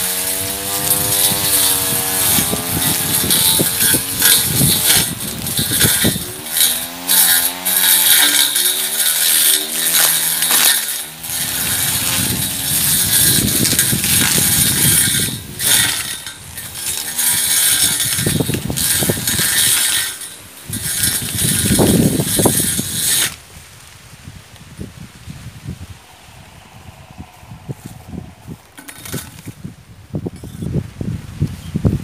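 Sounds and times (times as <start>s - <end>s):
blade chopping grass: 0.0s - 23.4s, 28.8s - 29.6s
electric grass trimmer running: 0.0s - 23.4s, 26.1s - 29.6s.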